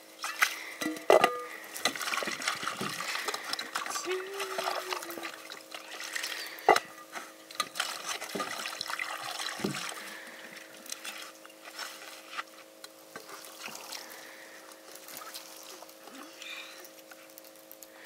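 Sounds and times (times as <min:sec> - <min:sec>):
water splashing in a pot: 0:00.0 - 0:10.2.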